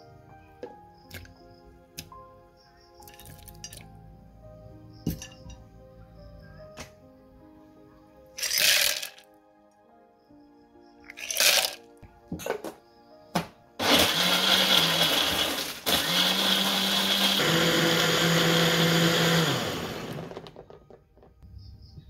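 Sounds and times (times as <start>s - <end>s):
blender crushing ice: 8.4s - 9.2s, 11.2s - 11.8s, 13.8s - 20.7s.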